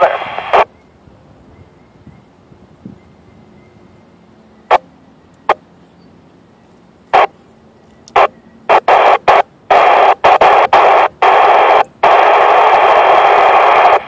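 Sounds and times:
bursts of radio static: 0.0s - 0.7s, 4.7s - 4.9s, 7.1s - 7.4s, 8.1s - 14.0s.

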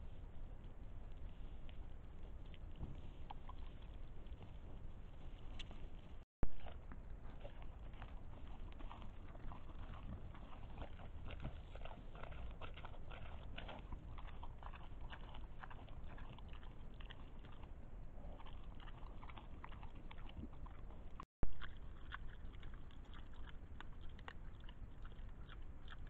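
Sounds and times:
boars crunching and rustling: 0.0s - 26.0s
low steady rumble: 0.0s - 26.0s.

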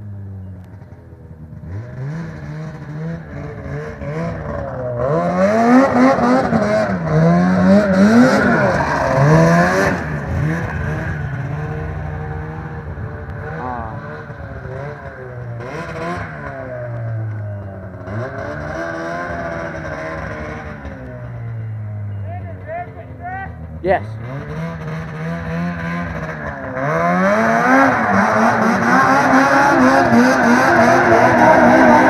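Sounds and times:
snowmobile engine revving: 0.8s - 21.4s, 22.4s - 32.0s.

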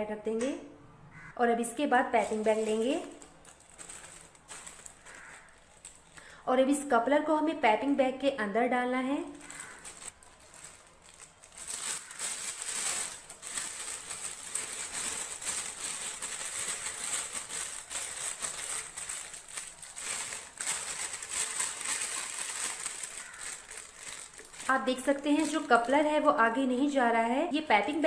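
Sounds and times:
plastic piping bag crinkling: 1.9s - 6.8s, 9.1s - 27.0s.

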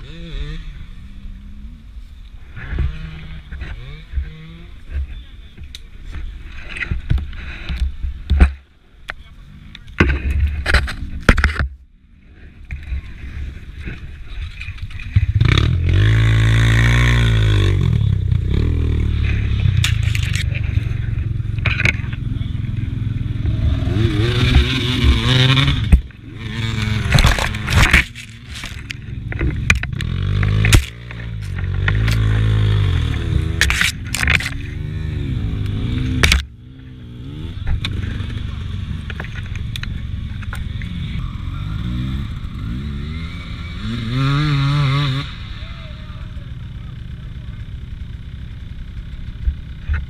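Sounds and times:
dirt bike engine revving: 0.0s - 1.8s, 2.5s - 5.3s, 13.2s - 50.0s
bike knocking and rattling: 2.6s - 11.8s, 12.6s - 16.1s, 19.2s - 41.2s, 47.2s - 50.0s
knocks and scrapes in mud: 19.1s - 22.3s, 23.9s - 34.8s.

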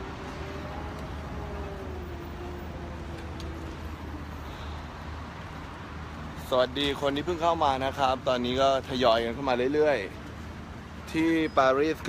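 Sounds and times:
faint engine drone: 0.0s - 5.1s
city traffic rumble: 0.0s - 12.0s.

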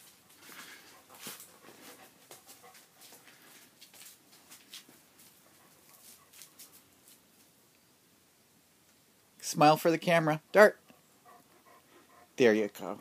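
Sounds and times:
dog moving with clicks and scuffs: 0.0s - 7.5s.

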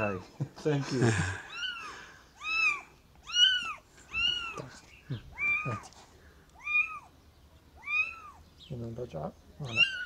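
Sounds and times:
kitten mewing: 1.4s - 5.8s, 6.6s - 7.1s, 9.7s - 10.0s.

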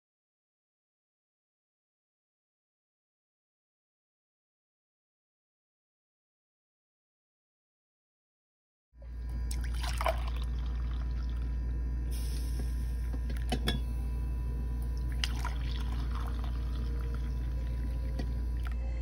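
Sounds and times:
steady low hum: 9.0s - 19.0s
coffee pouring into a mug: 9.5s - 11.6s, 14.9s - 18.9s.

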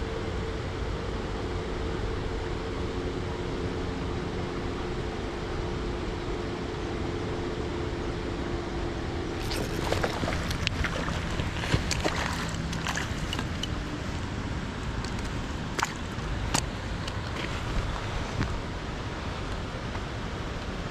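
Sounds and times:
faint hum: 0.0s - 20.9s
wind: 0.0s - 20.9s
running water: 9.2s - 19.6s.

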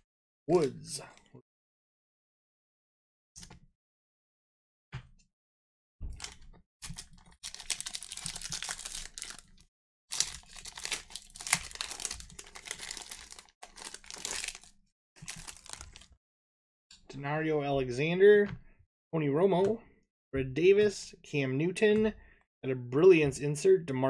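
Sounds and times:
wrappers tearing and crinkling: 6.2s - 16.2s.

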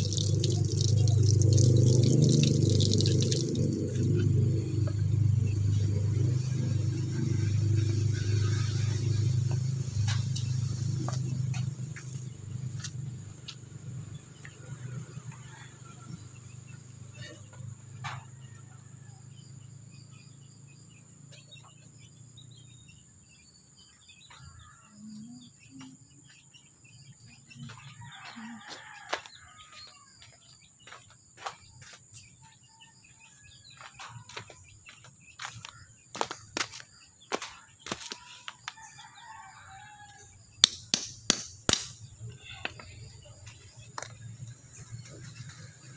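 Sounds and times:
water splashing onto stone: 0.0s - 4.2s
birds chirping: 0.0s - 17.8s, 19.4s - 40.7s, 42.0s - 45.9s.

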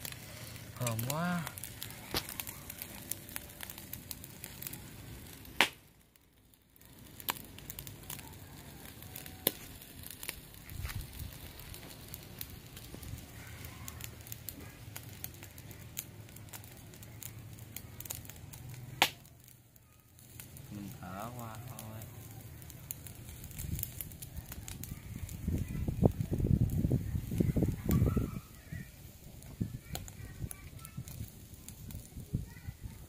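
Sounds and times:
charcoal fire crackling: 0.0s - 33.0s
sharp pops and clicks: 1.6s - 3.9s, 5.5s - 8.0s, 9.4s - 19.6s.

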